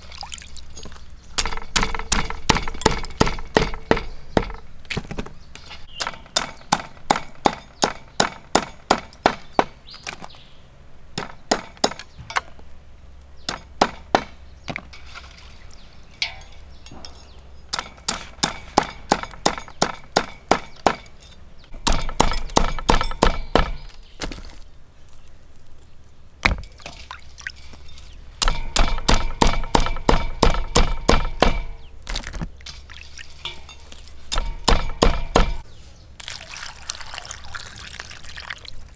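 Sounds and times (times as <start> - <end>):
light clinking: 16.0 - 18.0, 32.7 - 34.6.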